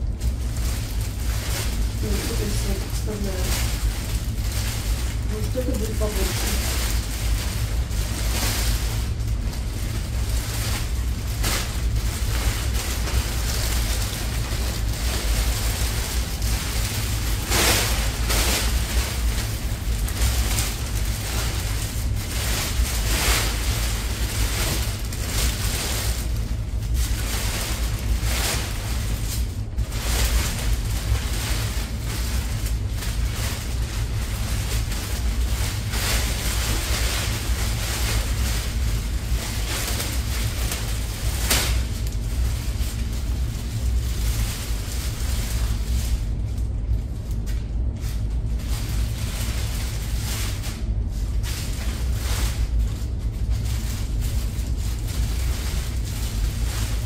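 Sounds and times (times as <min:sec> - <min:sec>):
plastic cover rustling and crinkling: 0:00.0 - 0:57.0
steady low rumble: 0:00.0 - 0:57.0.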